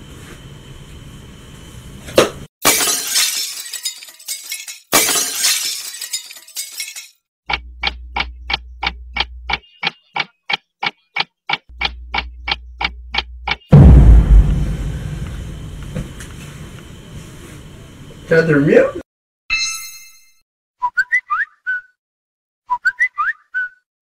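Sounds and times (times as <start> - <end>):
glass shattering crash: 2.6 - 7.2
fast clock ticking: 7.5 - 13.7
low hum: 13.7 - 17.0.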